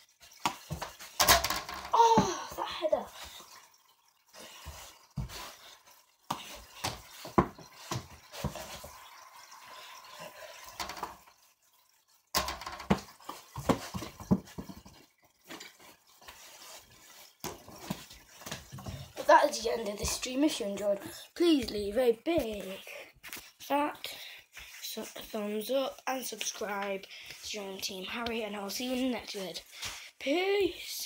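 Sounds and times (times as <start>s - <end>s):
light knocks and thumps: 6.3s - 9.0s, 12.3s - 15.8s.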